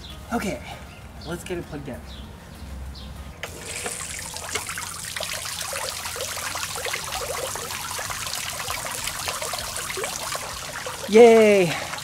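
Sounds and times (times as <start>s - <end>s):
fountain water splashing: 3.4s - 12.0s.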